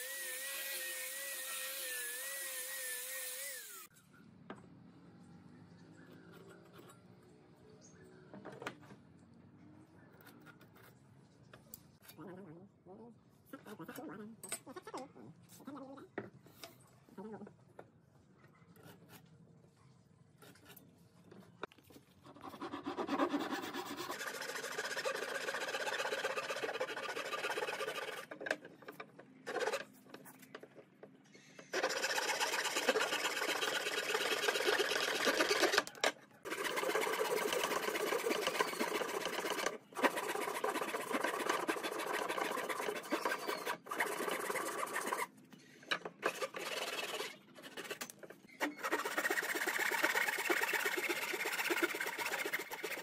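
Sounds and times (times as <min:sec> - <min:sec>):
hand saw cutting wood: 0:00.0 - 0:03.9, 0:22.2 - 0:28.7, 0:29.5 - 0:29.9, 0:31.7 - 0:45.3, 0:45.9 - 0:53.0.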